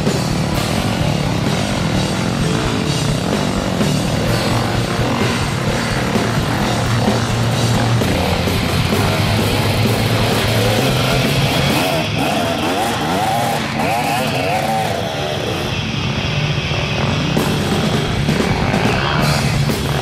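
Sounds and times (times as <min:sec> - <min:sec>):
dirt bike engines revving: 0:00.0 - 0:20.0
rock music: 0:00.0 - 0:20.0.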